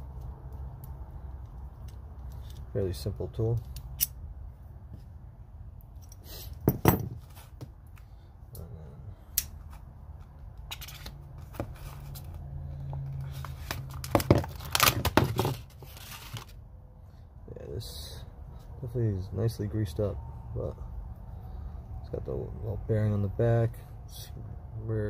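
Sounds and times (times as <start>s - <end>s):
metal tool knocking on workbench: 6.7s - 7.2s
plastic packaging crackling and tearing: 13.5s - 16.6s.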